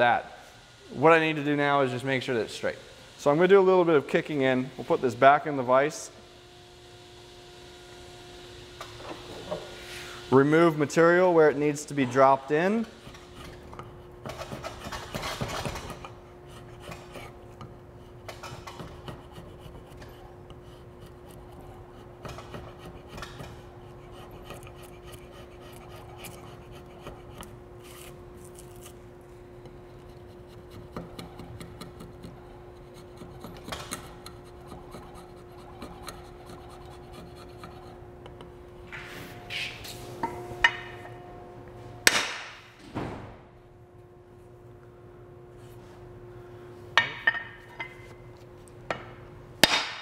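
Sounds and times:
drawknife scraping wood: 0:13.1 - 0:29.0, 0:29.8 - 0:38.0.

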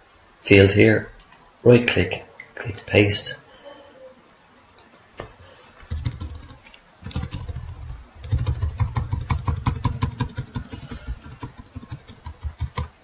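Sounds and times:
keyboard keys tapping: 0:05.8 - 0:13.0.

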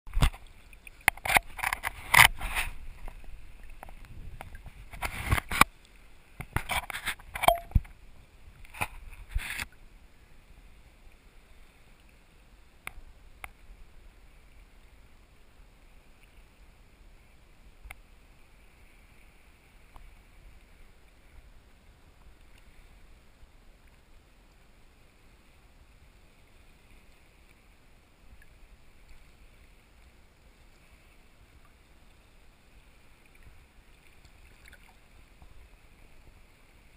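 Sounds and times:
water splashing against camera: 0:00.1 - 0:09.8
faint wash of water: 0:00.1 - 0:36.9.

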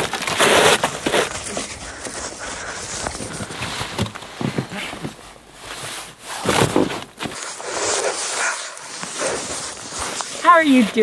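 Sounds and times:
gloved hands brushing snow: 0:07.4 - 0:11.0.

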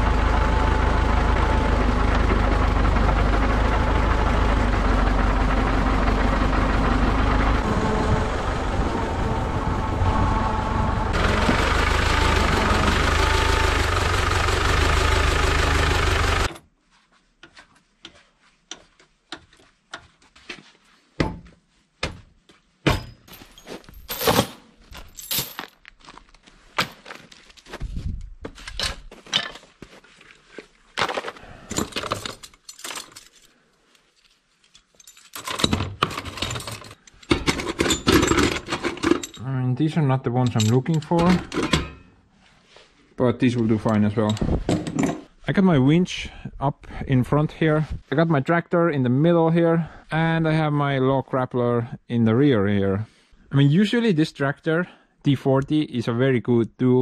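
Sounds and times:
tractor diesel engine running: 0:00.0 - 0:16.6
metal chains and shackles clanking: 0:22.8 - 0:25.9, 0:28.6 - 0:29.8, 0:31.0 - 0:39.6, 0:40.4 - 0:42.2, 0:43.6 - 0:45.3.

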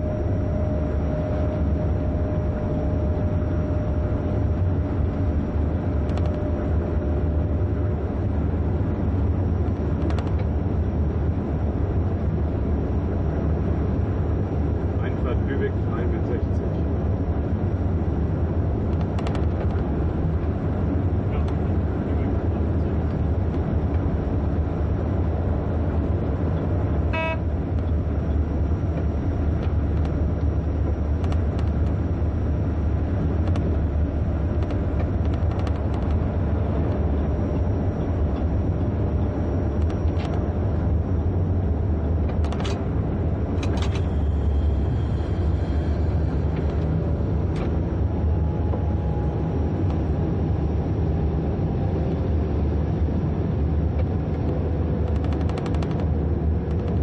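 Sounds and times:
train rumbling: 0:00.0 - 0:57.0
short tone: 0:27.1 - 0:27.5.

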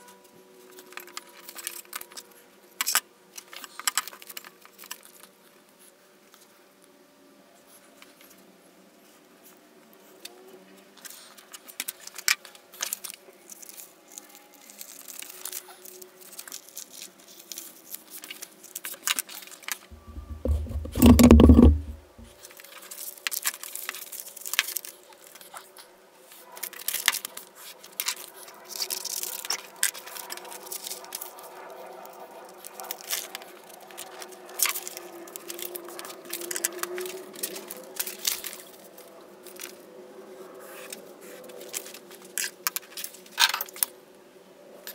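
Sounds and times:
paper rustling and folding: 0:11.6 - 0:25.6.

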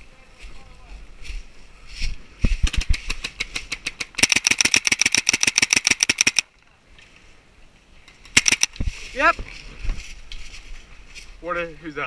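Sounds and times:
paintball markers firing: 0:02.6 - 0:06.5, 0:08.3 - 0:08.7.

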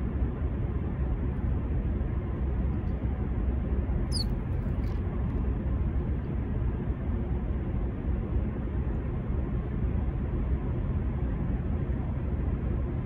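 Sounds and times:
low outdoor rumble: 0:00.0 - 0:13.0
bird chirp: 0:04.1 - 0:04.4.

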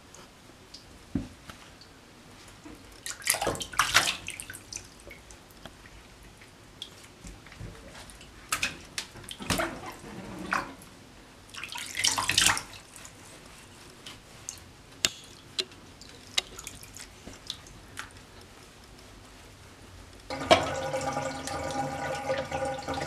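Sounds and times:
water splashing in a bathtub: 0:02.7 - 0:14.7, 0:15.3 - 0:18.3, 0:20.3 - 0:23.0.

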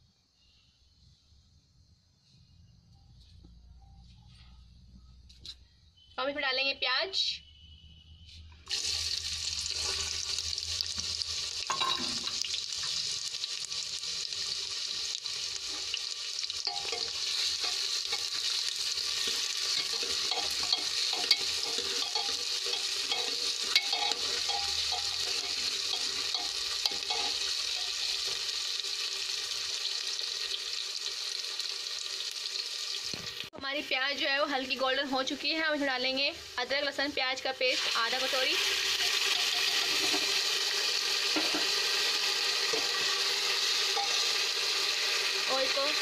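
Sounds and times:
onions sizzling in hot oil: 0:08.7 - 0:46.0
metal ladle scraping pot: 0:19.2 - 0:28.4, 0:38.9 - 0:40.4, 0:43.8 - 0:44.4.

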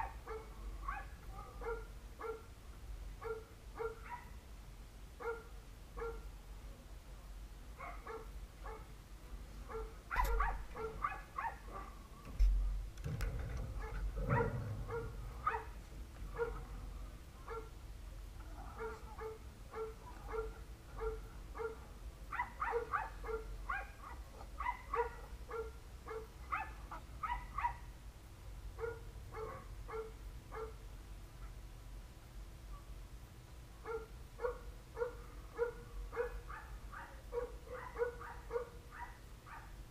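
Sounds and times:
dog barking: 0:00.0 - 0:02.5, 0:03.2 - 0:04.4, 0:05.2 - 0:06.3, 0:07.8 - 0:08.9, 0:09.7 - 0:12.0, 0:13.8 - 0:16.7, 0:17.5 - 0:17.7, 0:18.6 - 0:27.9, 0:28.8 - 0:30.8, 0:33.8 - 0:39.8.

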